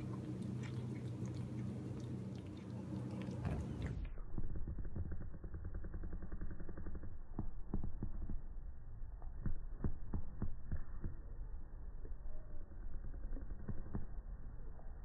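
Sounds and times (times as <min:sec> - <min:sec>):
cat chewing muffled clicks: 0:00.0 - 0:04.2
low rumble: 0:00.0 - 0:06.2.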